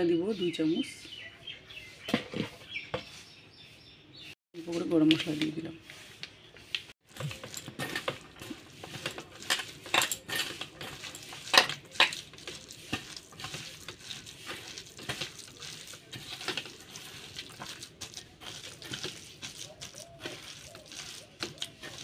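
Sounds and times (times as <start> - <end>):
batter squelching: 5.9 - 22.0
fingers scraping metal bowl: 7.2 - 22.0.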